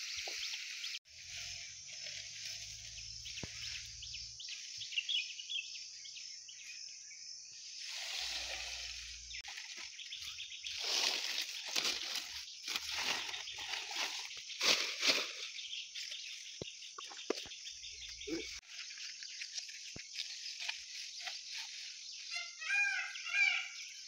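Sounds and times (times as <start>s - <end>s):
dry palm fronds rustling: 0.0s - 4.0s, 7.8s - 16.4s
bird chirps: 0.0s - 7.8s, 8.8s - 14.8s, 15.4s - 24.0s.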